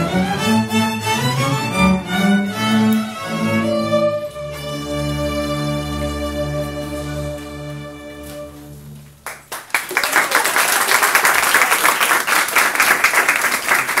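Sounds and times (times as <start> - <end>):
string orchestra chord: 0.0 - 9.3
audience applauding: 9.1 - 14.0.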